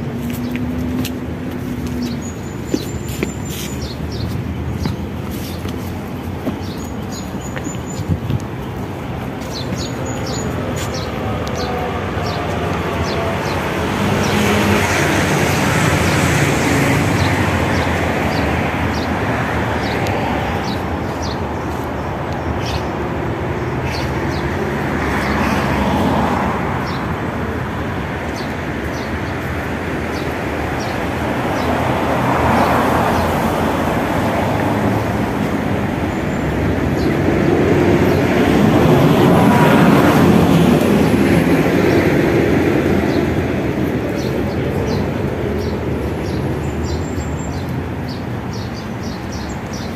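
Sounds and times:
footsteps walking: 0.0s - 13.8s
cars passing: 0.0s - 49.9s.

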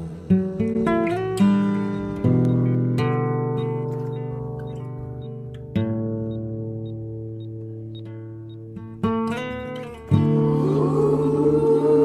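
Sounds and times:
acoustic guitar chord ringing: 0.0s - 12.0s
light ticking: 2.0s - 10.2s.

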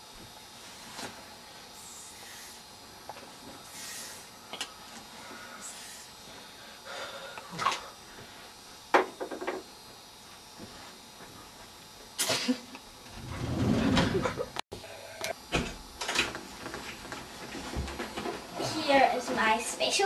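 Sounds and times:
sliding wardrobe door rattling: 13.2s - 14.5s.

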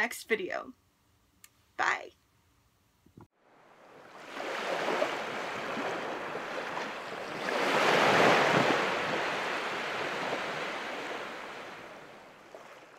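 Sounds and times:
ocean waves washing: 3.4s - 12.9s.

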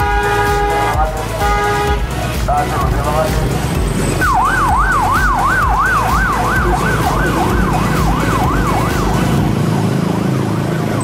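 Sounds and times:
bus horn wailing: 0.0s - 2.8s
traffic rumble: 0.0s - 11.0s.

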